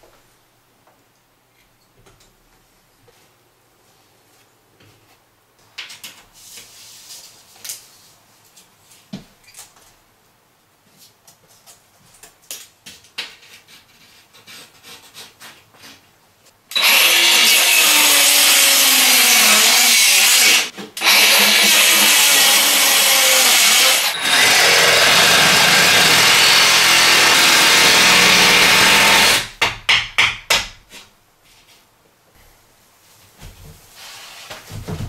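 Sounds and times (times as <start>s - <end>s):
power saw cutting board: 16.7s - 29.5s.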